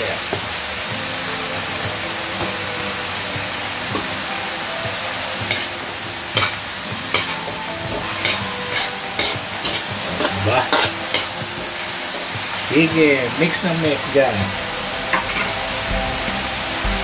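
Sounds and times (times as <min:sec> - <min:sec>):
vegetables sizzling in a wok: 0:00.0 - 0:17.0
metal ladle scraping a wok: 0:08.2 - 0:11.3.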